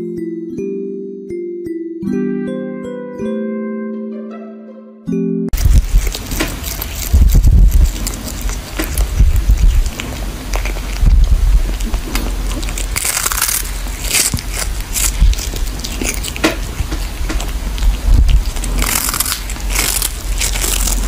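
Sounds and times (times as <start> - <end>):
cat chewing crunchy fish: 5.6 - 21.0.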